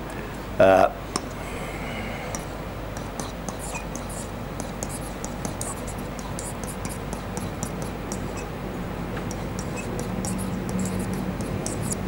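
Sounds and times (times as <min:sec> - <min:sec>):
low room hum: 0:00.0 - 0:12.0
stylus tapping and scratching on whiteboard: 0:02.3 - 0:08.5, 0:09.2 - 0:12.0.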